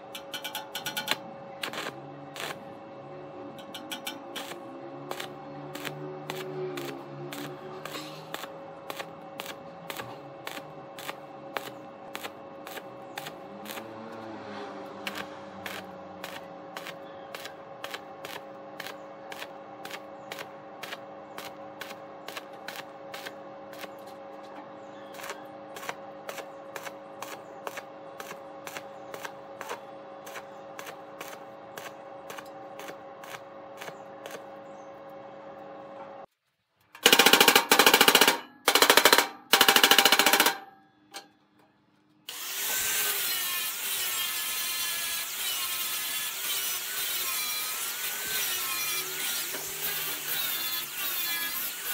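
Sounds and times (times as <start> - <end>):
droning synth pad: 0.0 - 36.3.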